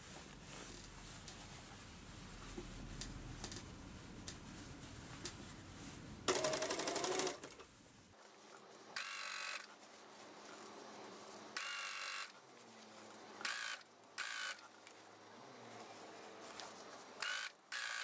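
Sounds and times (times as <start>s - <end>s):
sewing machine motor whine: 6.3s - 7.5s, 13.4s - 14.6s, 17.2s - 18.0s
sewing machine stitching: 6.3s - 7.6s.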